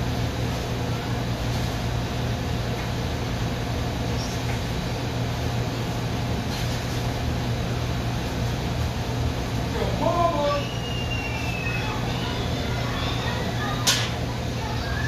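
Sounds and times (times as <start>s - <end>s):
exhaust hood fan rushing air: 0.0s - 15.0s.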